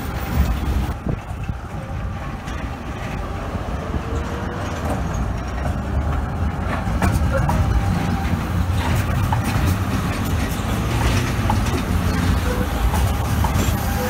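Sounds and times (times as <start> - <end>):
tram wheels rumbling on rails: 0.0 - 14.0
sharp clicks over rail joints: 4.5 - 14.0
brief wheel squeaks: 11.5 - 14.0.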